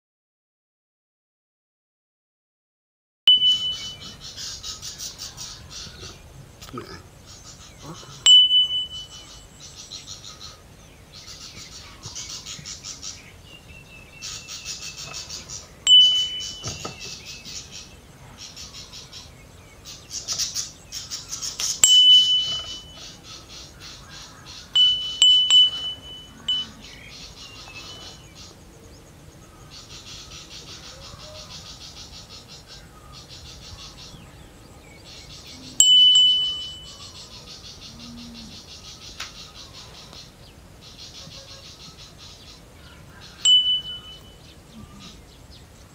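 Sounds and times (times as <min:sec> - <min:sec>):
high-pitched bell strikes: 0:03.3 - 0:04.2, 0:08.2 - 0:09.5, 0:15.9 - 0:17.0, 0:21.8 - 0:23.2, 0:24.8 - 0:27.0, 0:35.8 - 0:37.4, 0:43.5 - 0:44.4.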